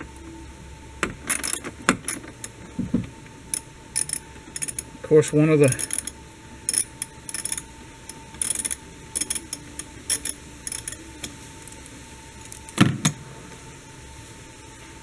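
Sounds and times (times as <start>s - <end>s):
socket ratchet clicking: 1.2s - 2.5s, 3.5s - 11.0s.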